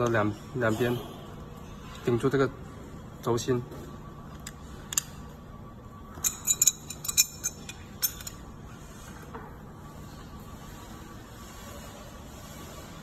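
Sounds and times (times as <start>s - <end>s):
metal clinking: 6.2s - 8.4s.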